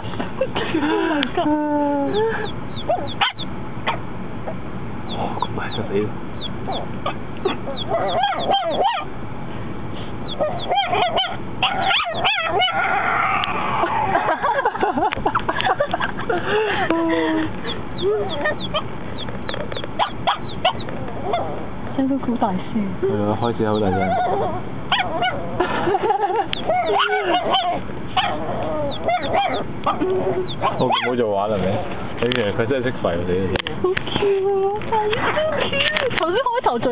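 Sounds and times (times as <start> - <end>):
puppy barking high-pitched: 2.7 - 4.1, 6.7 - 9.1, 10.3 - 14.2, 18.2 - 18.9, 19.9 - 21.6, 23.8 - 25.5, 26.6 - 31.3.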